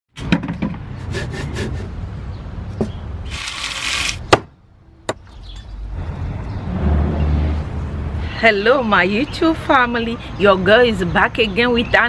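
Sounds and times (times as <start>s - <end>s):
cleaver chopping on wooden block: 4.3s - 4.5s.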